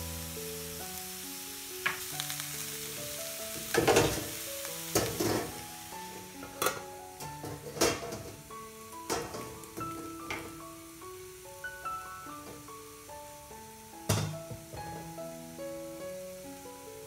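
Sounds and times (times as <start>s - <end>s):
cabbage sizzling in a frying pan: 0.0s - 17.0s
soft background music: 0.0s - 17.0s
steel lid clanking on pan: 3.7s - 5.6s, 6.4s - 8.4s, 9.0s - 10.5s
spatula scraping clatters: 5.0s - 5.6s.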